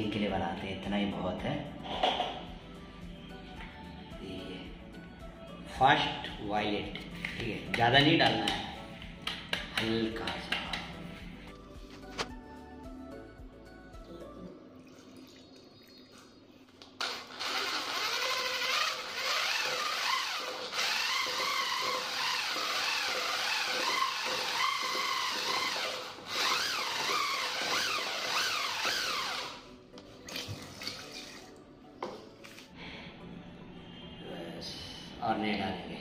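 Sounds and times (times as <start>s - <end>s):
electric drill mixing paint: 17.0s - 29.7s
water pouring into bucket: 30.3s - 31.5s.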